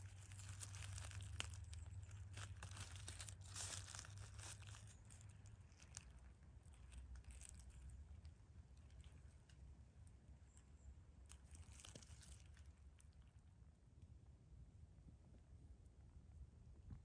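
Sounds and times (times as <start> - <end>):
leaf litter crackling: 0.0 - 8.0, 11.3 - 13.3.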